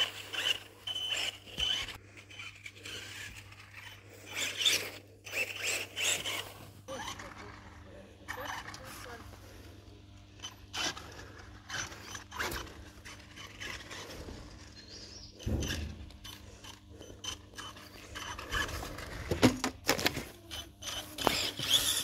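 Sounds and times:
rc truck motor whirring: 0.0s - 22.0s.

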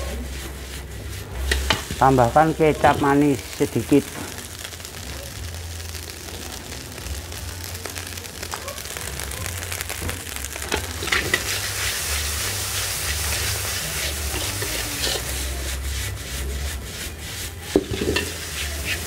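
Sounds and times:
metal spatula scraping a wok: 0.0s - 3.2s, 10.7s - 19.0s
rice sizzling in a wok: 0.0s - 19.0s.

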